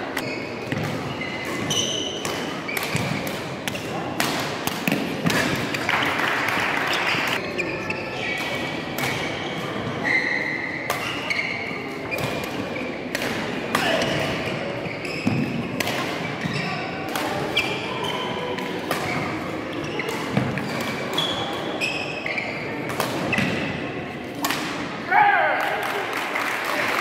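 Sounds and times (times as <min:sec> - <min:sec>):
racket hitting shuttlecock: 0:00.1 - 0:07.5, 0:08.4 - 0:09.8, 0:12.1 - 0:14.5, 0:15.1 - 0:17.8, 0:18.6 - 0:21.7, 0:22.8 - 0:23.7.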